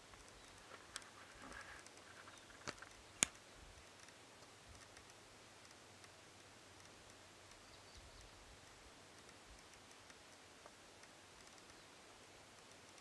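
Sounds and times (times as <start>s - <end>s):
faint steady hiss: 0.0s - 13.0s
sharp clicks: 1.7s - 13.0s.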